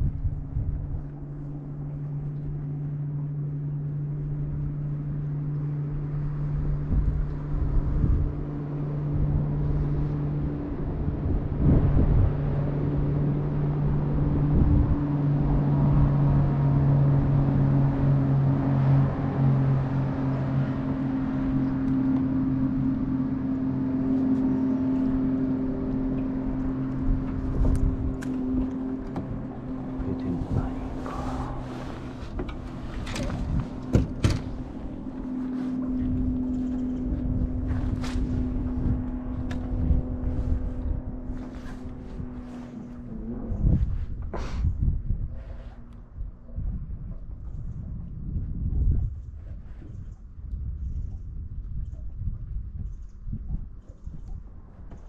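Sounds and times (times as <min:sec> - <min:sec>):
electric trolling motor humming: 0:00.6 - 0:44.3.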